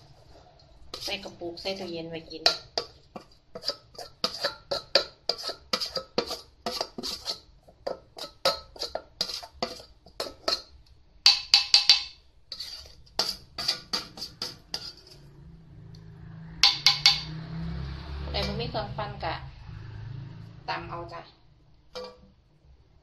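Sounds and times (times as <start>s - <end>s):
metal spoon clinking on steel bowl: 2.4s - 15.2s, 16.6s - 17.3s, 22.0s - 22.3s.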